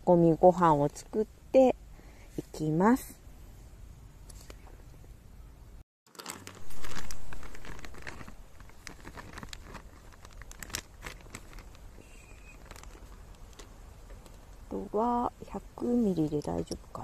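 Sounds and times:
plastic bag crinkling: 6.1 - 14.4.

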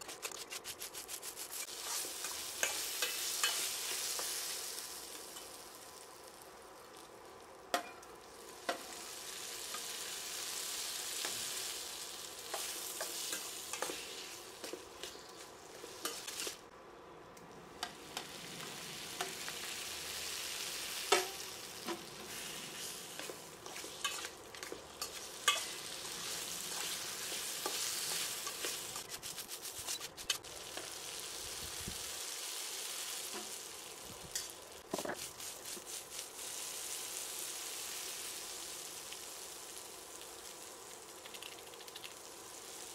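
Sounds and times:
spatula scraping a pan: 0.0 - 4.5, 21.9 - 30.5
vegetables sizzling in a pan: 1.0 - 16.7, 17.7 - 42.9.

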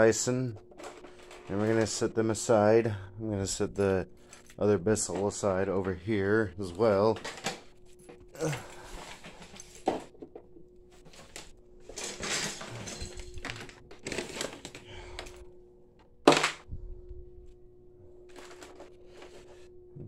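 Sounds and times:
plastic clattering and rustling: 0.6 - 2.0, 7.1 - 8.2, 8.8 - 15.3, 18.3 - 19.6.

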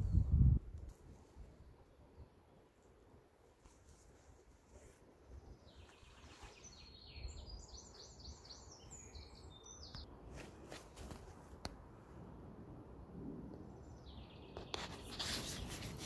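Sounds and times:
wind rumble: 0.0 - 1.8, 11.2 - 16.0
songbird chirping: 4.7 - 10.7, 13.7 - 15.8.

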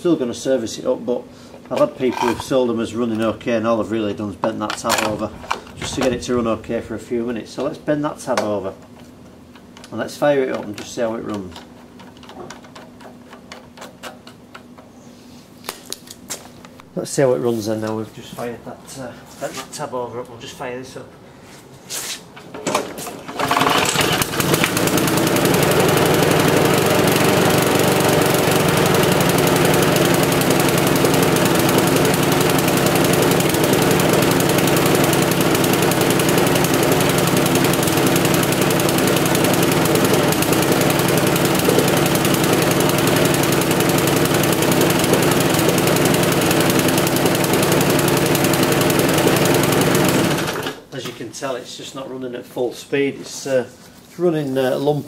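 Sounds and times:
lawnmower engine running lumpy: 4.9 - 7.1, 23.3 - 50.8.

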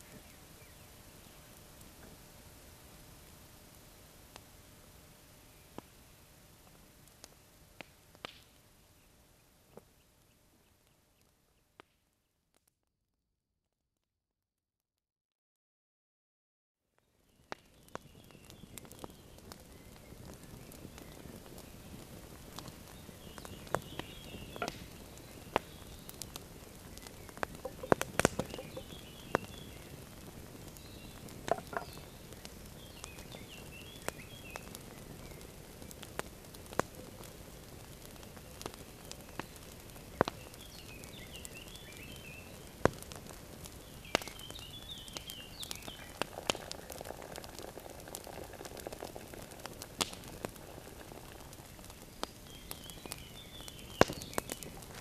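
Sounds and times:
campfire crackling and popping: 0.0 - 12.8, 17.0 - 55.0
small birds twittering: 17.3 - 37.3, 38.0 - 55.0
liquid poured into a cup: 46.3 - 49.7.

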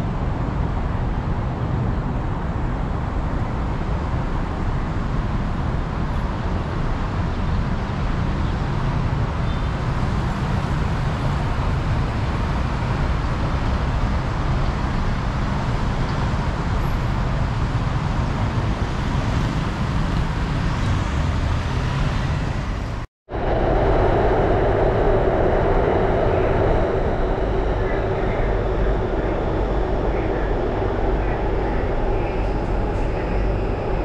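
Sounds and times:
road traffic rumble: 0.0 - 34.0
train car interior noise: 9.1 - 34.0.

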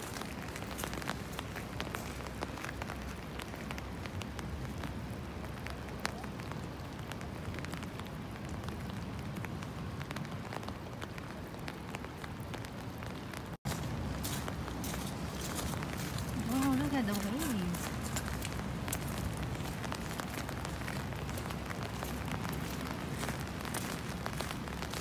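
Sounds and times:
raindrops ticking: 0.0 - 25.0.

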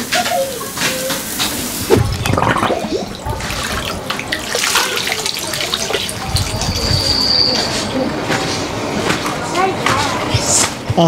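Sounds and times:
meat sizzling on a grill: 0.0 - 2.0
water splashing and pouring: 1.3 - 7.2.

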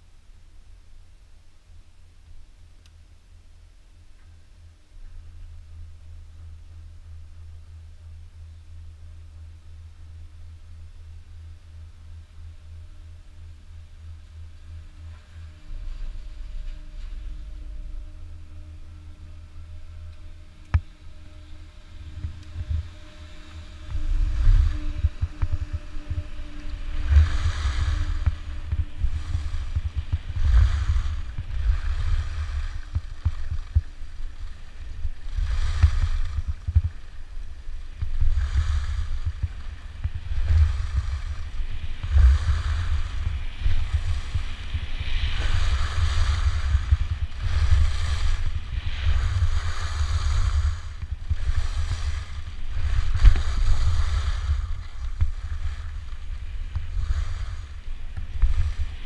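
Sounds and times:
wind buffeting microphone: 10.4 - 59.0
skis scraping across snow: 13.8 - 59.0.

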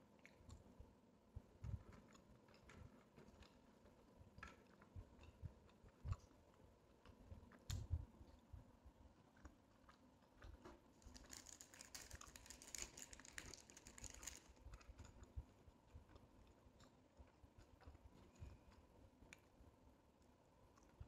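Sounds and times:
quiet chewing: 1.4 - 21.0
plastic bag crinkling: 11.0 - 14.6.

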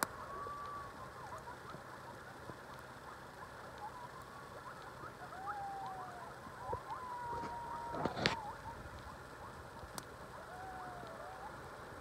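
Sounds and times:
coyotes yipping: 0.0 - 11.8
coyote howl: 0.1 - 11.8.

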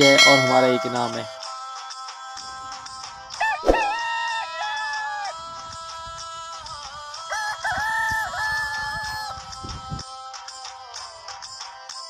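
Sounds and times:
rooster crowing: 3.4 - 5.3, 7.3 - 9.3.

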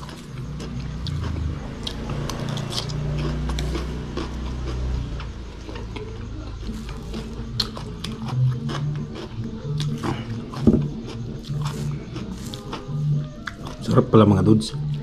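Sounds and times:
chewing crunchy vegetables: 0.0 - 15.0.

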